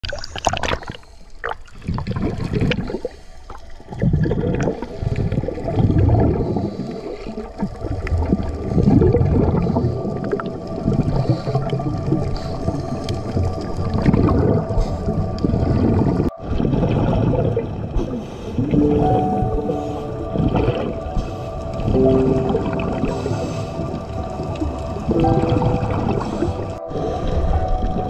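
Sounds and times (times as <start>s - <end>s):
diver breathing underwater: 4.4s - 7.5s, 14.1s - 24.5s, 25.2s - 28.0s.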